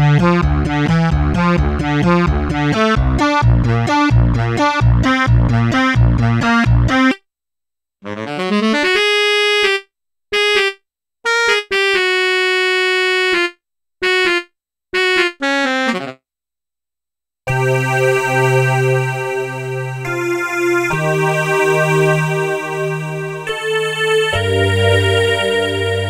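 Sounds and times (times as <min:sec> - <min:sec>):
synthesizer saxophone notes: 0:08.0 - 0:16.2, 0:17.5 - 0:26.0
synthesizer pad chord: 0:17.5 - 0:26.0.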